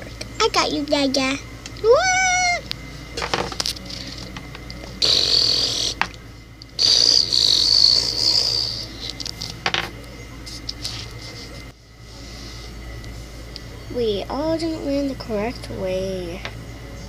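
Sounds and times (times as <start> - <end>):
child's mouth whooshing whistle: 5.0 - 6.0, 6.8 - 8.9.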